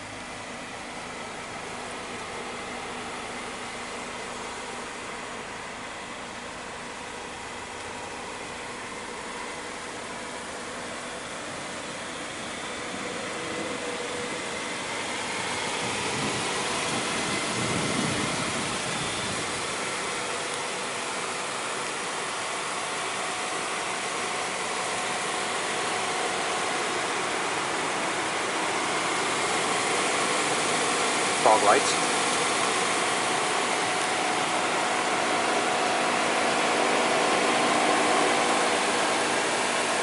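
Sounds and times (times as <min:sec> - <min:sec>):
vehicle engine hum: 0:00.0 - 0:40.0.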